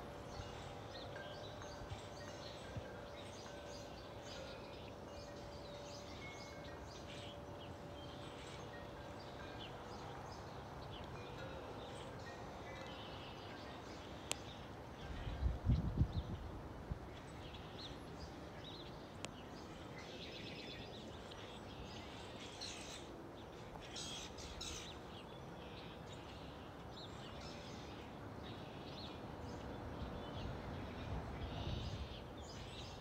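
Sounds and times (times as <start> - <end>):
wind chime ringing: 0.0 - 14.1.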